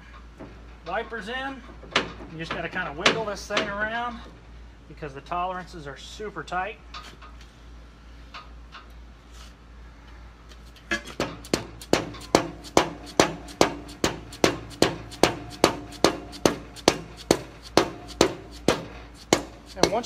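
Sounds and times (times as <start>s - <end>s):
mallet knocking on metal cylinder: 11.5s - 20.0s.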